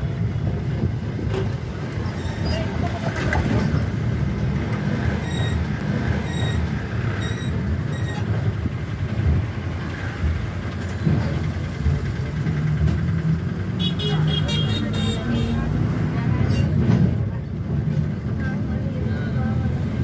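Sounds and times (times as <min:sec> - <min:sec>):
bus engine and road rumble: 0:00.0 - 0:20.0
short high-pitched beeps: 0:05.2 - 0:08.2.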